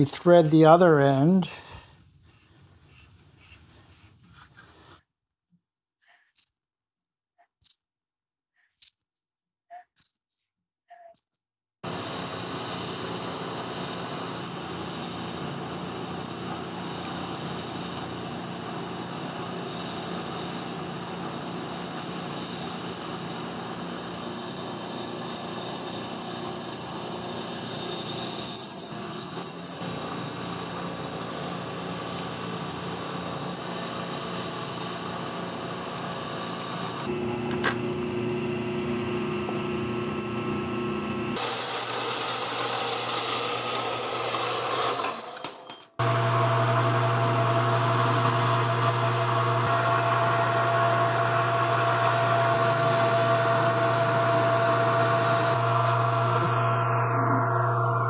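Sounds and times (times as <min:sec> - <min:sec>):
bandsaw cutting metal: 0:11.8 - 0:57.8
lathe drilling: 0:11.8 - 0:58.0
metal lathe running: 0:11.9 - 0:58.0.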